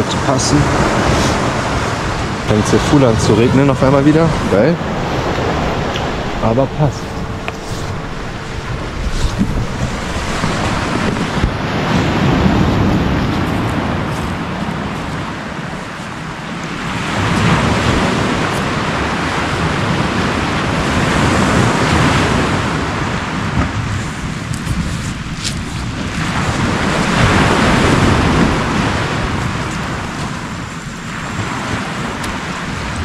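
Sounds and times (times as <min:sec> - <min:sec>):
wind buffeting microphone: 0:00.0 - 0:33.0
waves washing onto pebble beach: 0:09.0 - 0:33.0.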